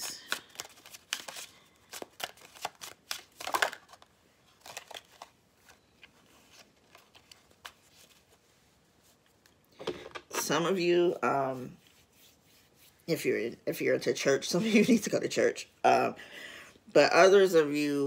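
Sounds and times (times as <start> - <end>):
cards shuffled by hand: 0.0 - 10.7.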